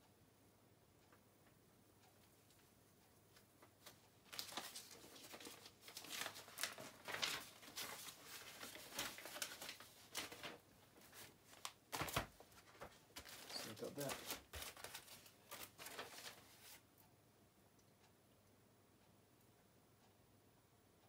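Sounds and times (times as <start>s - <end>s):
packaging wrappers crinkling: 3.8s - 16.8s.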